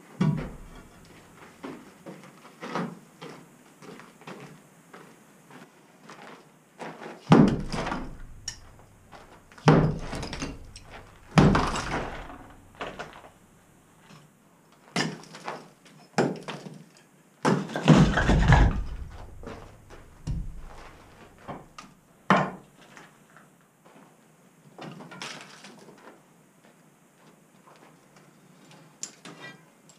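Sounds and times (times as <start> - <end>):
heavy knocks on plaster and brick: 0.2 - 1.2, 7.3 - 13.3, 17.5 - 21.7
rubble clattering down: 7.3 - 13.4, 17.7 - 21.6.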